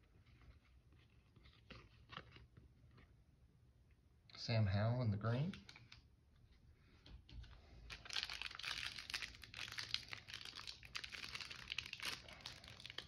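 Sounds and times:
foil wrapper crinkling: 0:07.9 - 0:13.0
foil pack tearing open: 0:08.1 - 0:13.0.

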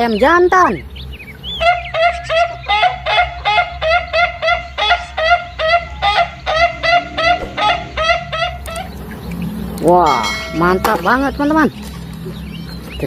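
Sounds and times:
fowl honking: 0:01.4 - 0:11.2.

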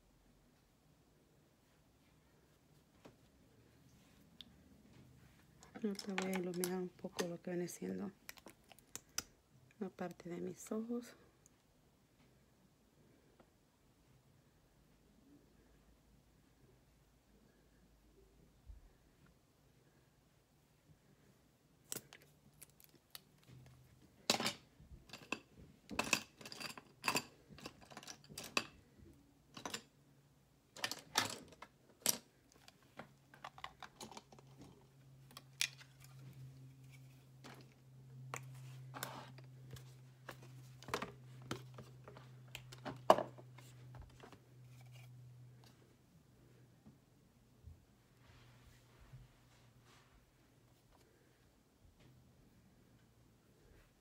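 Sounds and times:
faint low hum: 0:00.0 - 0:54.0
makeup containers clicking and tapping: 0:05.7 - 0:07.4.

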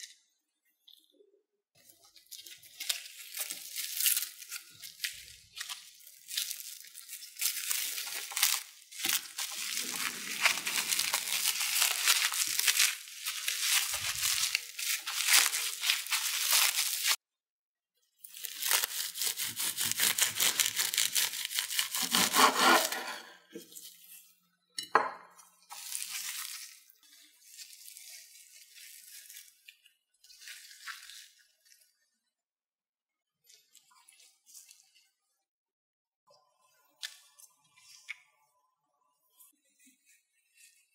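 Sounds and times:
food packaging crinkling: 0:02.0 - 0:17.2, 0:18.2 - 0:22.9, 0:25.7 - 0:31.8.

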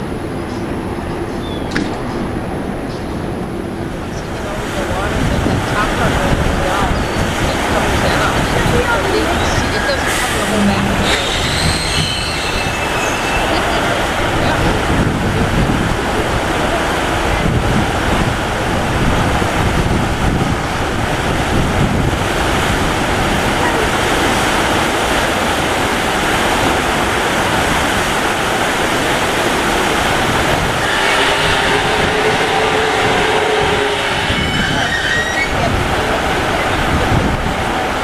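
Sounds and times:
water churning: 0:00.0 - 0:38.0.

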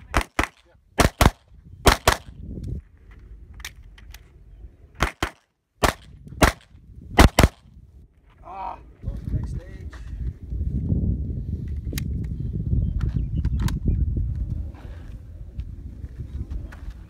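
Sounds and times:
pistol shots: 0:00.1 - 0:02.3, 0:05.0 - 0:07.6.

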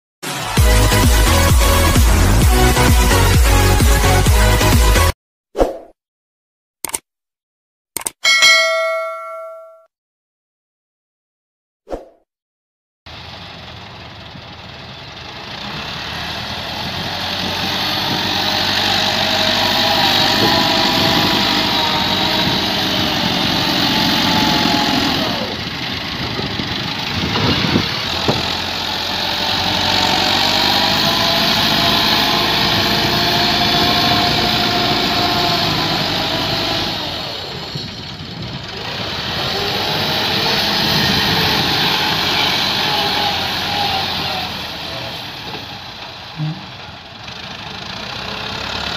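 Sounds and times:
diesel tractor engine running: 0:13.1 - 0:48.9.

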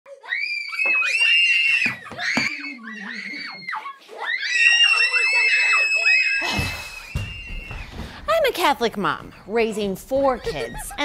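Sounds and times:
children screaming: 0:00.1 - 0:08.1, 0:10.4 - 0:11.0.

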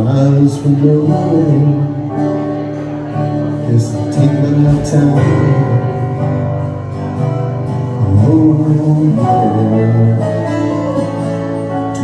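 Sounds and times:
acoustic guitar: 0:00.0 - 0:12.0.

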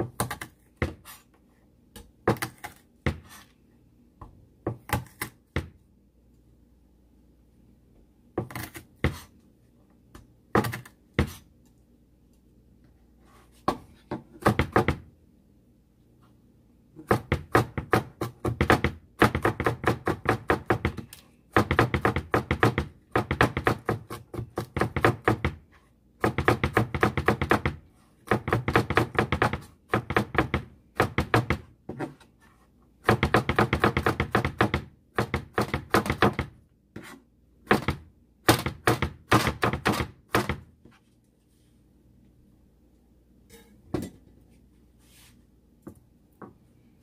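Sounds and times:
knife chopping on plastic board: 0:00.0 - 0:01.3, 0:01.9 - 0:03.5, 0:04.2 - 0:05.8, 0:08.3 - 0:09.3, 0:10.1 - 0:11.5, 0:13.6 - 0:15.1, 0:17.0 - 0:25.6, 0:26.2 - 0:32.2, 0:33.0 - 0:40.7.

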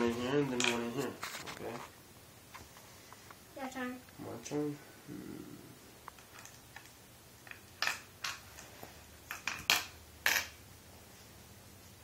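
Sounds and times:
glass stones clicking on wooden board: 0:06.4 - 0:08.4.

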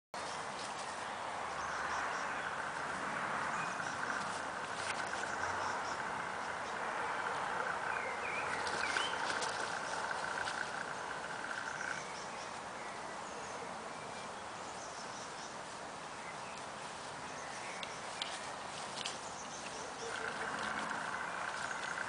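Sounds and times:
bird chirps: 0:03.5 - 0:15.6.

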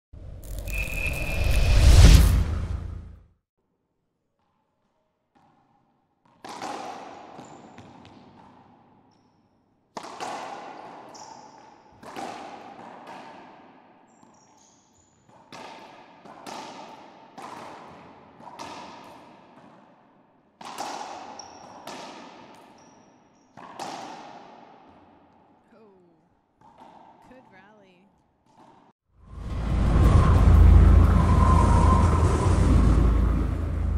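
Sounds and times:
ball smacking off racquets and walls: 0:05.3 - 0:08.9, 0:09.9 - 0:13.8, 0:23.5 - 0:25.4.

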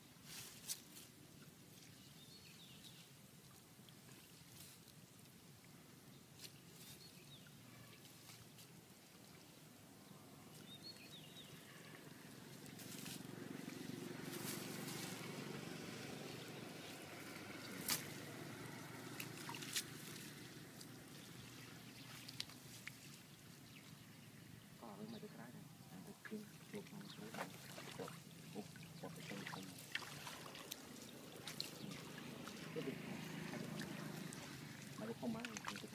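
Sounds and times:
water sloshing and dripping: 0:14.7 - 0:23.6, 0:26.2 - 0:35.9.

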